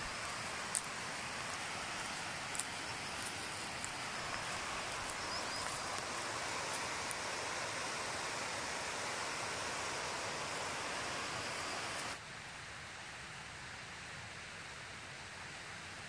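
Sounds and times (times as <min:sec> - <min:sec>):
river rapids rushing: 0:00.0 - 0:12.2.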